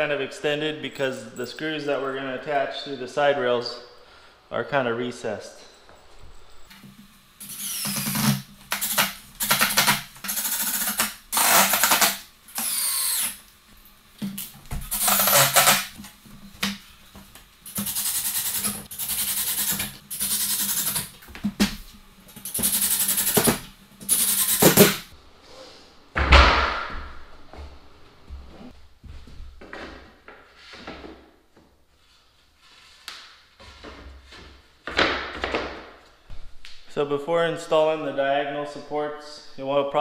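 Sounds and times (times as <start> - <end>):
cordless drill driving screws: 7.4 - 13.4, 14.9 - 16.0, 17.7 - 21.1, 22.5 - 25.0.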